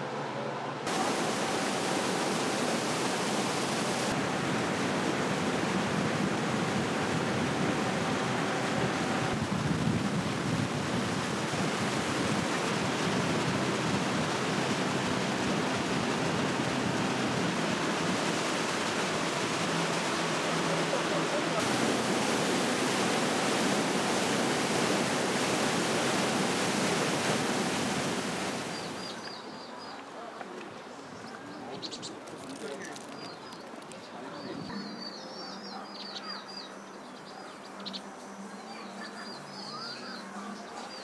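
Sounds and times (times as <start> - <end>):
steady rushing noise: 0.0 - 29.2.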